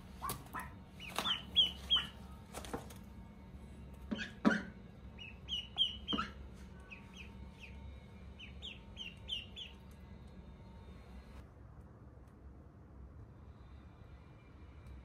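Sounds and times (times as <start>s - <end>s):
ducklings peeping: 0.0s - 2.7s, 4.1s - 10.4s.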